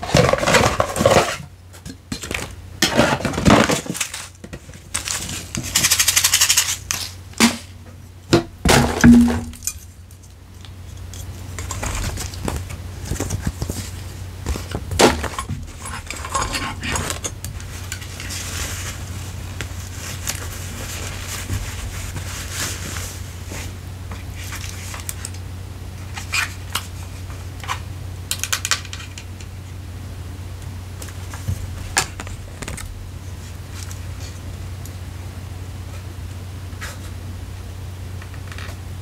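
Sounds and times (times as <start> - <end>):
packaging crinkling and rustling: 2.2 - 7.2, 11.2 - 23.8.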